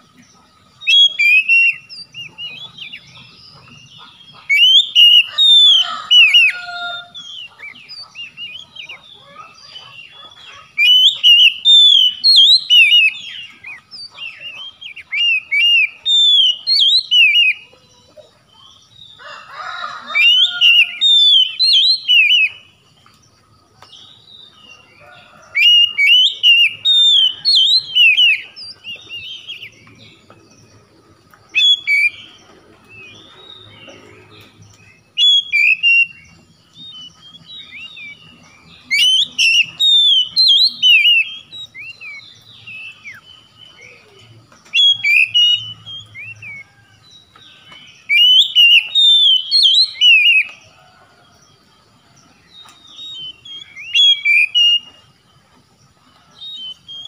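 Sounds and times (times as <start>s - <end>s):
bird singing whistles: 0.8s - 3.0s, 4.5s - 6.6s, 10.8s - 17.6s, 20.2s - 22.6s, 25.6s - 29.8s, 31.5s - 32.4s, 35.1s - 46.8s, 47.6s - 50.6s, 52.6s - 55.0s.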